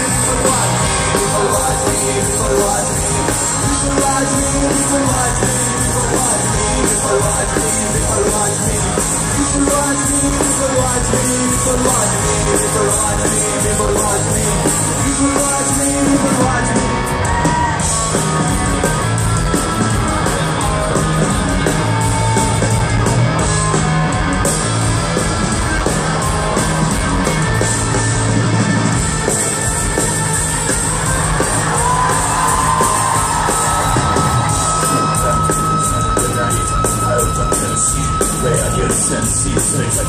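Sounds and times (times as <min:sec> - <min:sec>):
person singing: 0:00.0 - 0:17.8
live rock band: 0:00.0 - 0:40.0.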